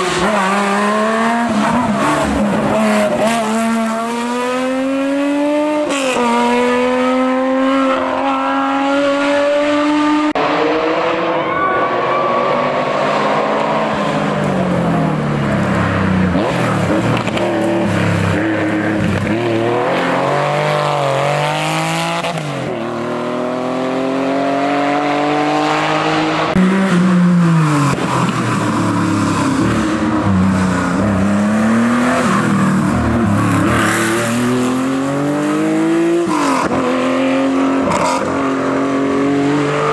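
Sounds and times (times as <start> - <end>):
rally car engines revving: 0.0 - 39.9.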